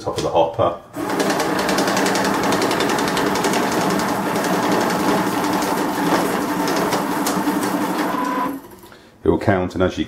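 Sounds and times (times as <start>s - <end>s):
banknote counter motor whirring: 1.0s - 8.9s.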